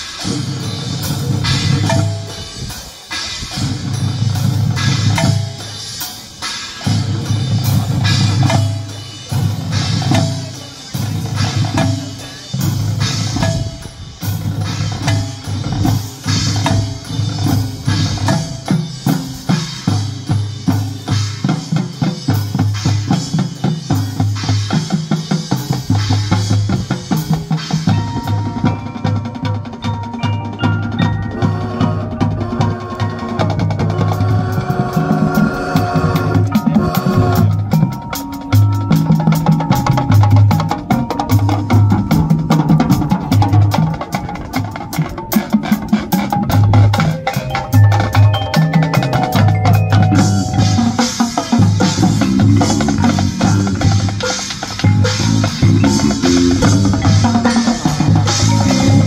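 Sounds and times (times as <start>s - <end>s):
marching band playing: 0.0s - 59.0s
drum hits: 34.1s - 59.0s.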